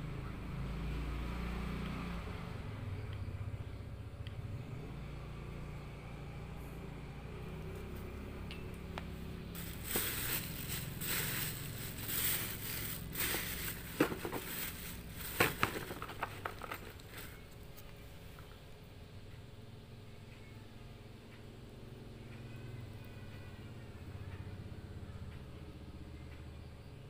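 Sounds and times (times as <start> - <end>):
steady low hum: 5.2 - 21.2
crackling and scraping: 8.7 - 17.9.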